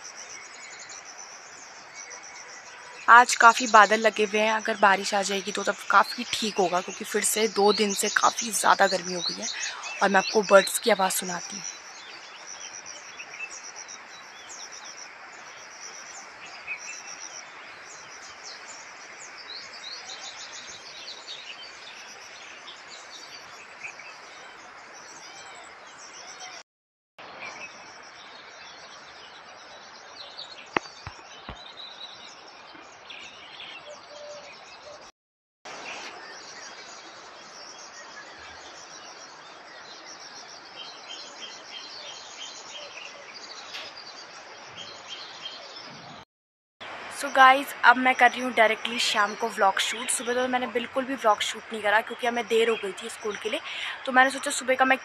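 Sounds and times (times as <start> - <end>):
birds chirping: 0.0 - 26.6, 28.4 - 35.1, 46.8 - 55.0.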